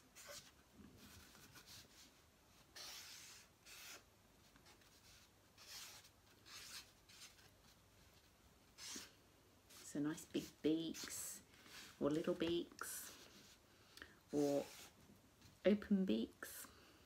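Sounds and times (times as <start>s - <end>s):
marker pen scratching on paper: 0.0s - 7.5s, 8.8s - 13.6s, 14.3s - 15.0s.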